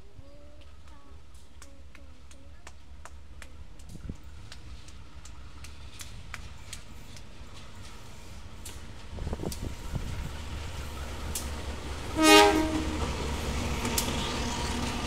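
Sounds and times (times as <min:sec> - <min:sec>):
diesel locomotive engine passing: 0:02.2 - 0:15.0
locomotive horn blast: 0:12.1 - 0:13.2.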